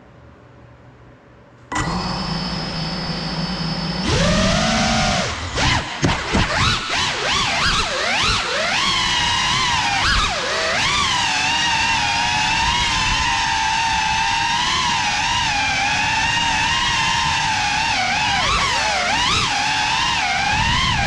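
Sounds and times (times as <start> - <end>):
drone motors whining: 1.7 - 21.0.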